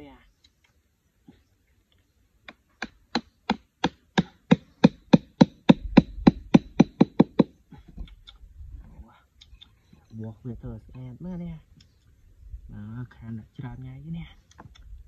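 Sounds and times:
hatchet knocking wooden peg: 0:02.5 - 0:07.6.

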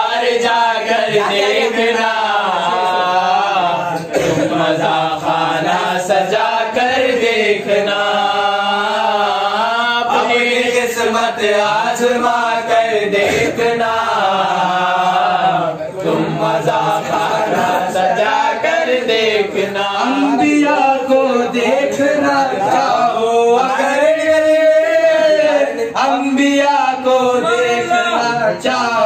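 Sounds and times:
man singing unaccompanied: 0:00.0 - 0:29.0.

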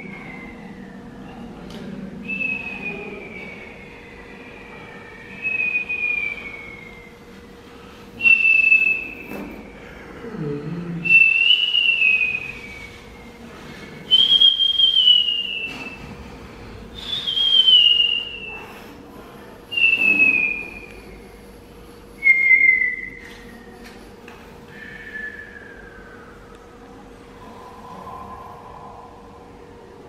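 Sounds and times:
high whistled notes: 0:00.0 - 0:01.4, 0:11.1 - 0:16.1, 0:16.9 - 0:18.7, 0:24.7 - 0:30.0
short low vocal sound: 0:09.5 - 0:11.4, 0:24.7 - 0:30.0.

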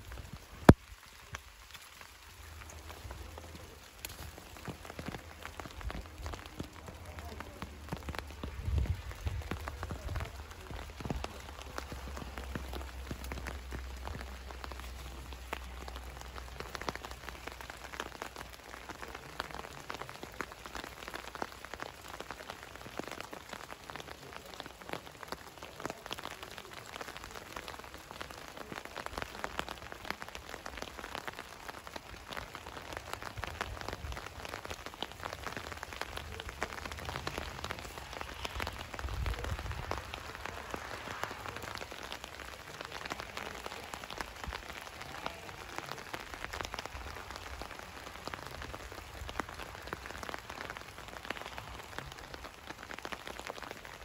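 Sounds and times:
rain falling on leaves: 0:00.0 - 0:54.0
wind gusts on microphone: 0:37.2 - 0:42.0.

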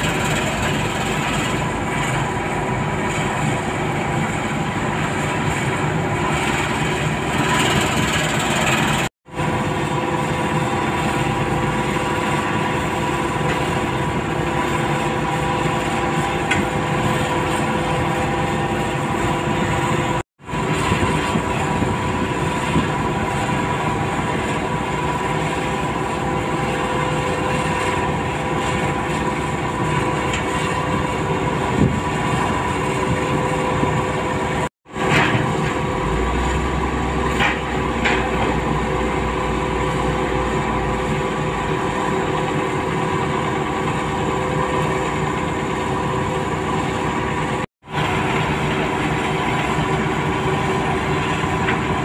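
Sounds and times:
excavator diesel engine running: 0:00.0 - 0:52.0
hydraulic whine: 0:00.0 - 0:52.0.

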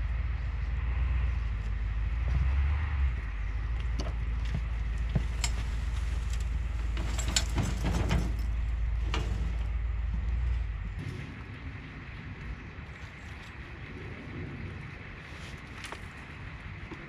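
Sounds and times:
steady low rumble: 0:00.0 - 0:17.0
compost sliding out: 0:05.1 - 0:09.9
wheelbarrow clunks: 0:05.1 - 0:09.9.

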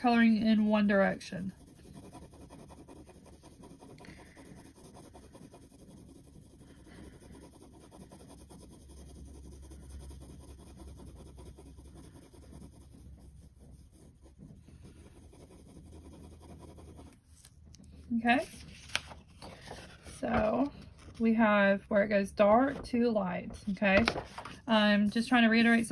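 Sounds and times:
pencil scratching on paper: 0:00.0 - 0:17.5, 0:23.6 - 0:25.9.

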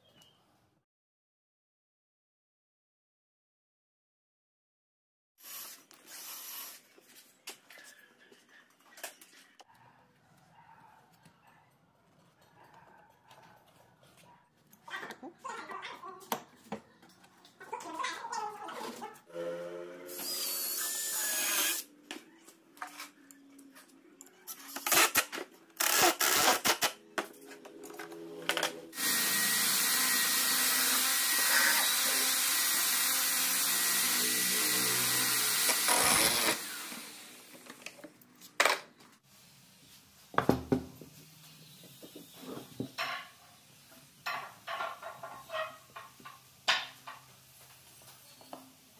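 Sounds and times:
cordless drill driving screws: 0:05.4 - 0:06.8, 0:20.1 - 0:21.9, 0:29.0 - 0:37.7.

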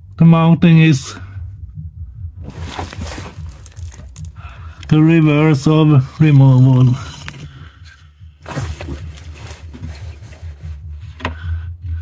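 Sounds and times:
low steady hum: 0:00.0 - 0:12.0
gloved hand rustling: 0:02.4 - 0:05.0, 0:05.7 - 0:10.9.

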